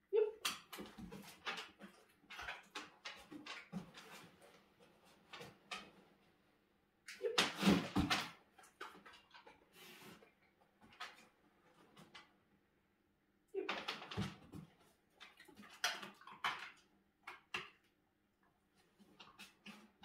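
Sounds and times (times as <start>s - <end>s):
dog claws clicking on wooden floor: 0.4s - 6.0s, 13.7s - 17.9s.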